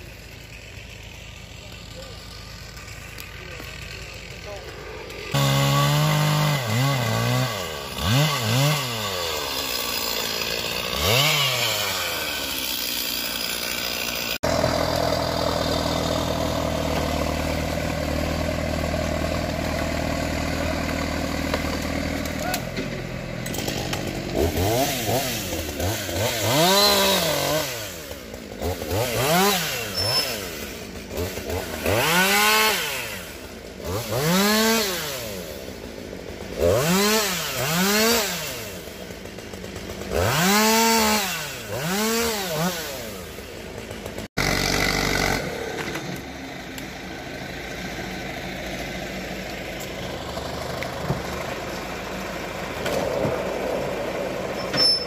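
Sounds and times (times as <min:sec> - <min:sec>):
diesel engine running: 0:00.0 - 0:26.3, 0:43.0 - 0:54.8
chainsaw revving: 0:00.0 - 0:54.7.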